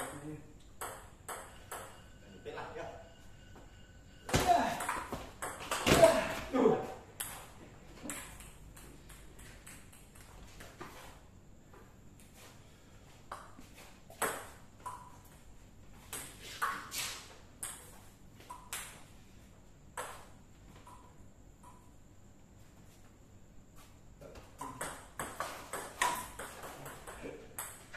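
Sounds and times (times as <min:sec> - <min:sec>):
table tennis ball hits: 0:00.0 - 0:02.1, 0:04.3 - 0:06.4, 0:07.2 - 0:10.3, 0:13.3 - 0:15.2, 0:24.6 - 0:27.9.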